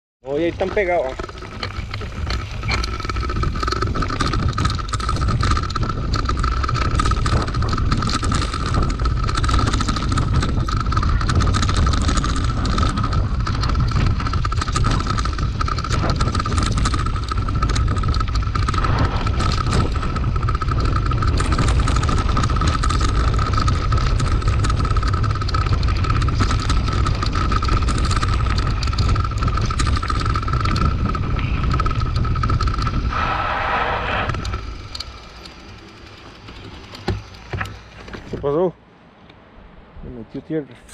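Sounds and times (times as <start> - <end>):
bike rattling over stones: 0.2 - 38.7
wind buffeting microphone: 0.3 - 38.5
high-pitched whine: 15.0 - 38.0.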